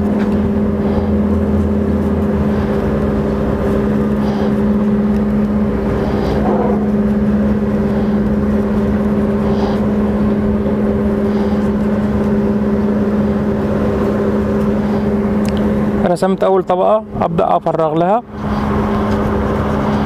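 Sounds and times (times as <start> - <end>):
motor humming: 0.0 - 16.4.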